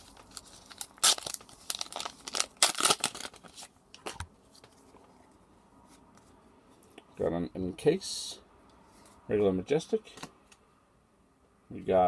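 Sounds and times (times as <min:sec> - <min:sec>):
foil wrapper crinkling and tearing: 0:00.0 - 0:04.1.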